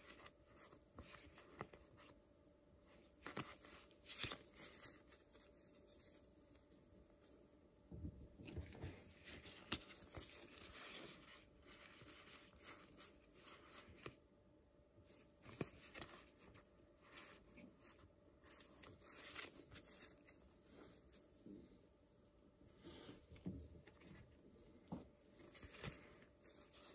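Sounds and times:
cards rustling and sliding: 0:02.9 - 0:06.6, 0:08.5 - 0:14.2, 0:15.1 - 0:21.3, 0:25.3 - 0:26.9.

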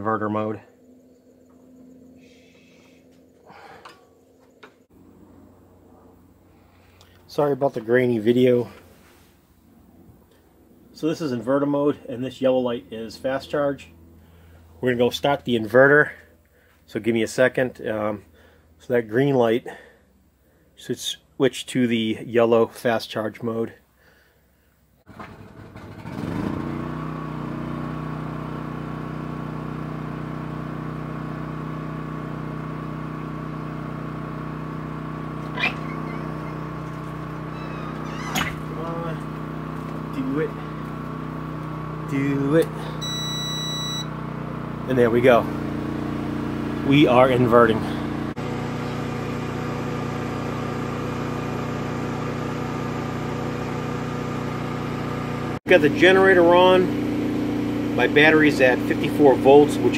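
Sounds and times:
generator engine running: 0:00.0 - 0:18.8, 0:25.1 - 0:59.9
low machine hum: 0:00.0 - 0:19.0, 0:30.7 - 0:53.8.

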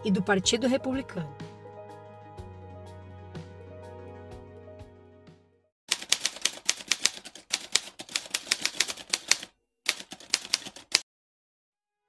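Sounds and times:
typewriter keys clacking: 0:05.9 - 0:11.0.

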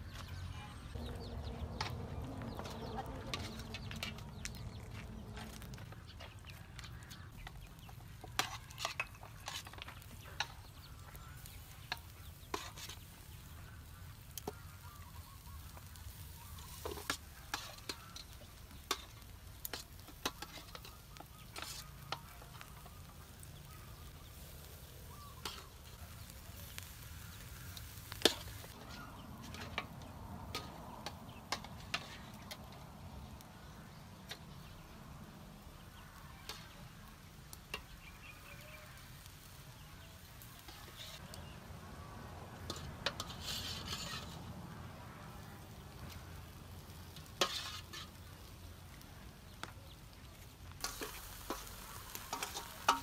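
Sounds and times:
faint sizzle: 0:00.3 - 0:53.0
metal tongs clicking and scraping: 0:08.3 - 0:10.8, 0:42.6 - 0:44.4.

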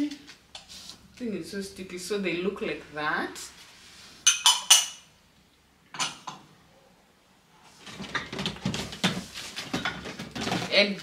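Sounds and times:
ceramic bowls clinking: 0:04.2 - 0:05.1, 0:05.9 - 0:06.5
rummaging in cardboard box: 0:07.8 - 0:11.0.

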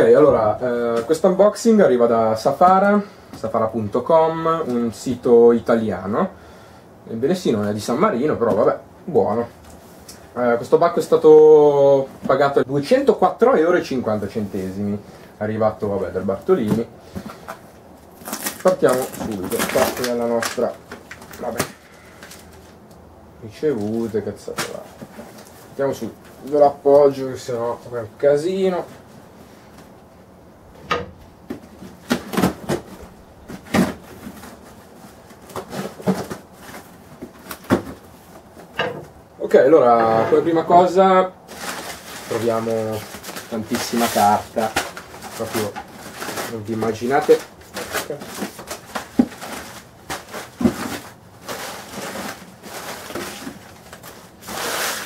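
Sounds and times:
packing paper rustling: 0:14.0 - 0:22.9, 0:23.7 - 0:27.2, 0:31.6 - 0:38.7, 0:41.4 - 0:55.0
cardboard scraping and knocking: 0:47.8 - 0:52.4
knife slitting packing tape: 0:54.5 - 0:55.0.

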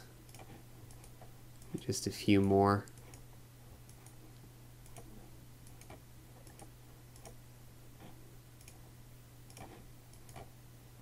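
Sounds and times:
steady low hum: 0:00.0 - 0:11.0
faint computer mouse clicks: 0:00.3 - 0:03.2, 0:03.9 - 0:04.2, 0:04.8 - 0:07.4, 0:08.6 - 0:08.8, 0:09.5 - 0:10.5.

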